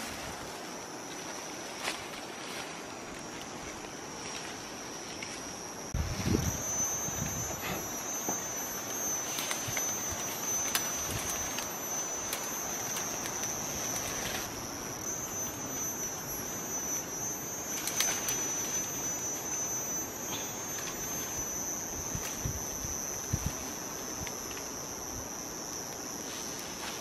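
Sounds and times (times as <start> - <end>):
insects droning: 0.0 - 27.0.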